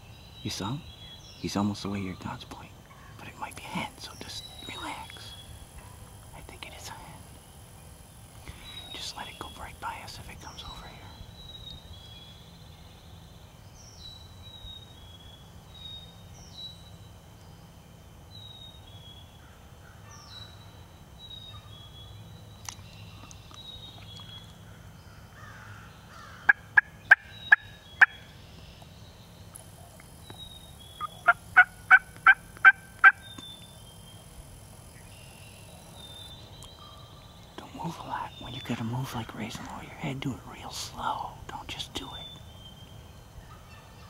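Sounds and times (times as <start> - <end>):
turkey yelping: 26.2 - 28.2, 31.0 - 33.2.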